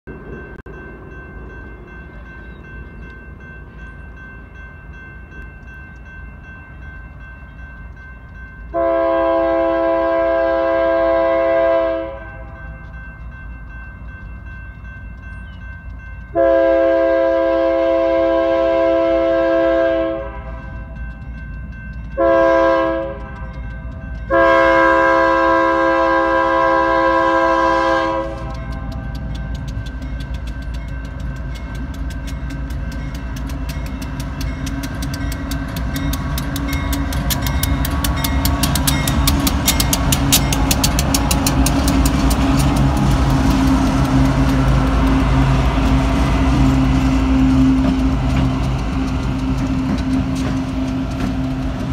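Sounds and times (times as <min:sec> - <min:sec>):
diesel locomotives passing: 0:00.0 - 0:51.9
rapid clicking of train wheels: 0:00.1 - 0:10.2, 0:12.2 - 0:17.2, 0:20.5 - 0:51.9
train air horn blasts: 0:08.7 - 0:12.8, 0:16.4 - 0:20.7, 0:22.2 - 0:23.5, 0:24.3 - 0:28.8.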